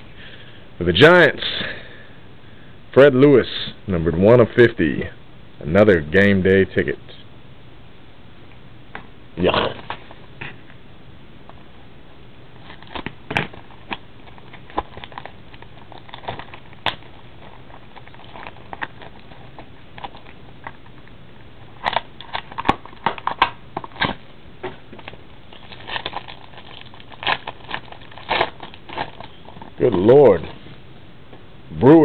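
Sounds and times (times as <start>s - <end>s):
plastic wrap and foil crinkling: 12.6s - 24.2s, 24.9s - 30.8s.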